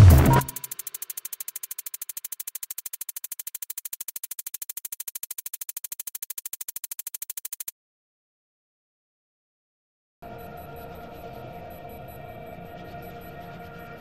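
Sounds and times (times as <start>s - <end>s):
rapid pulsing electronic music: 0.0s - 7.7s.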